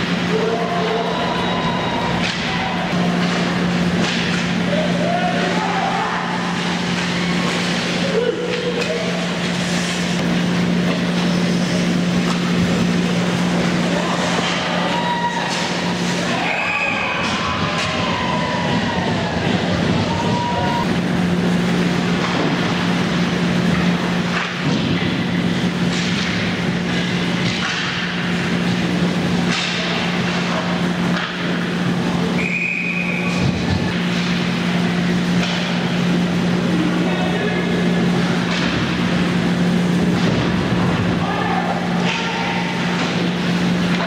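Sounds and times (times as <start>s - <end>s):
hockey sticks and puck clacking: 0.0s - 21.0s, 21.8s - 44.0s
steady low hum: 0.0s - 44.0s
high whistle-like tone: 32.4s - 33.4s.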